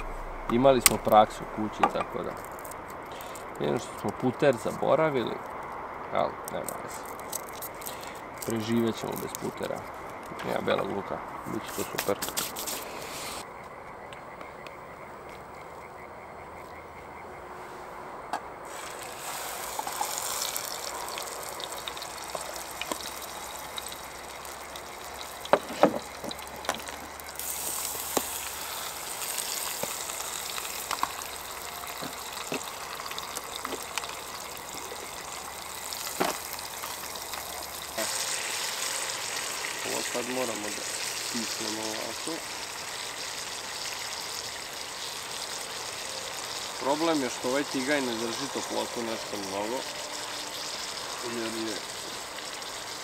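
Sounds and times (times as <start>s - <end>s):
steak sizzling in frying pan: 18.7s - 53.0s.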